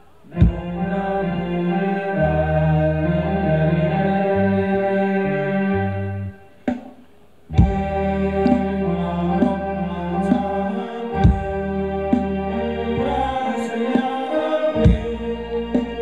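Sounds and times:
dance band music: 0.0s - 2.2s, 6.6s - 16.0s.

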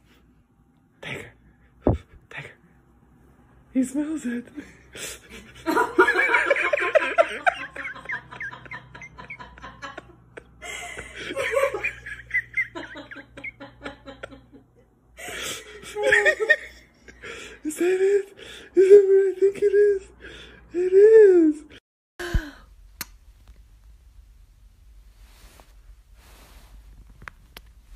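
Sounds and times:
people laughing and giggling: 5.3s - 14.8s.

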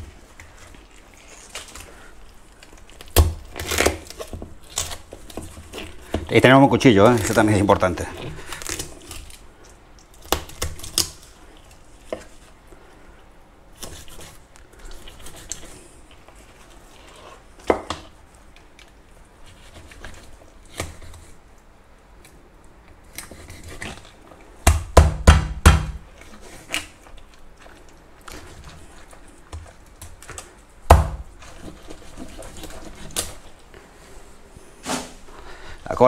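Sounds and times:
knife chopping fish on board: 24.6s - 26.0s.

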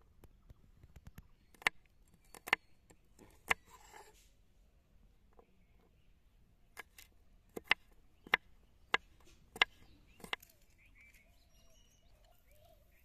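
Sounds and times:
knife chopping on wooden board: 1.5s - 2.6s, 6.8s - 10.4s.

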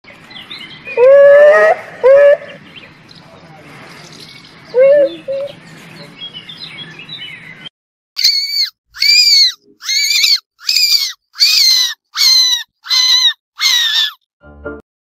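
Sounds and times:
elephant shrew squeaking: 8.2s - 14.2s.

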